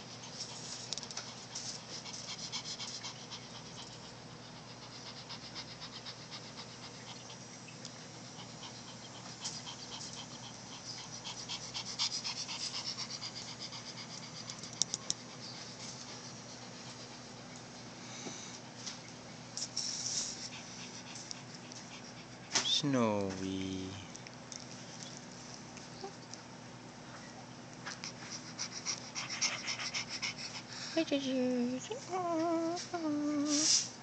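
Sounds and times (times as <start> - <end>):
dog panting: 0.0 - 22.7, 27.8 - 31.2.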